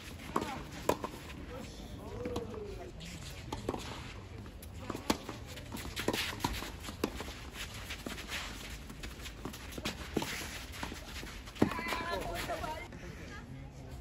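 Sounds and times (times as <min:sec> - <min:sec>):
footsteps scuffing on court: 0:04.8 - 0:12.9.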